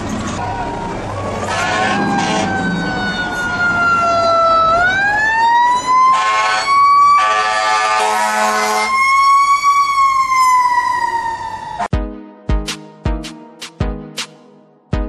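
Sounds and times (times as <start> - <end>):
horn blasts: 1.5 - 2.6, 6.1 - 9.0.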